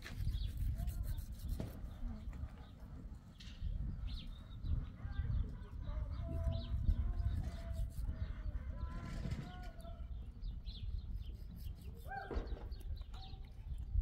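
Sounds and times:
small birds chirping: 0.0 - 14.0.

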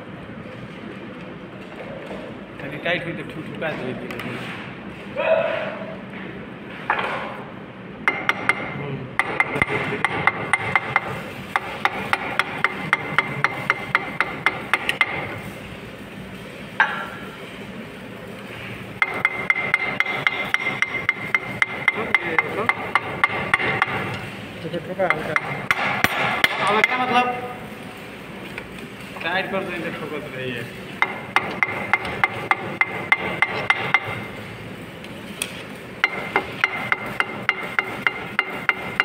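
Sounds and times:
hammer tapping on steel: 8.0 - 15.4, 19.0 - 24.3, 25.0 - 27.2, 31.0 - 34.3, 36.0 - 39.0.

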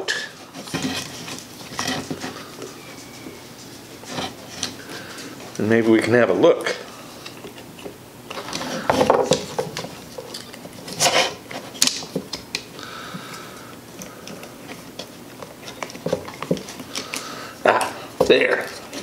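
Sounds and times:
faint squeak: 2.7 - 3.6.

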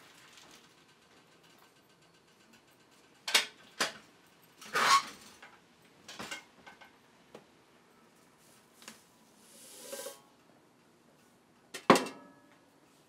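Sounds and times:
metal containers scraping: 9.4 - 10.3.

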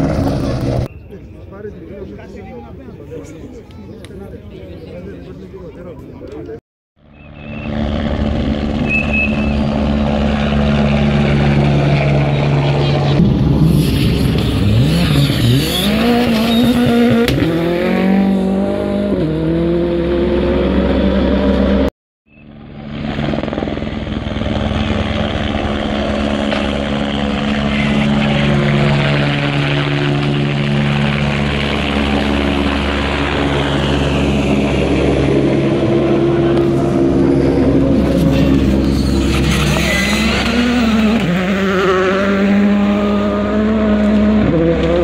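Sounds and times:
helicopter drone: 0.0 - 6.0, 7.0 - 45.0
rally car engine accelerating: 7.4 - 21.9, 33.4 - 45.0.

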